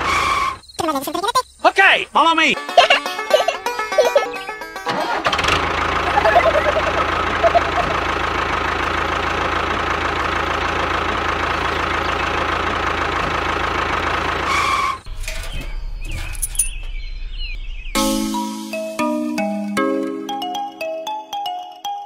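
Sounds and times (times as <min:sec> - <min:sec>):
toy tractor engine running: 0:02.8 - 0:11.7.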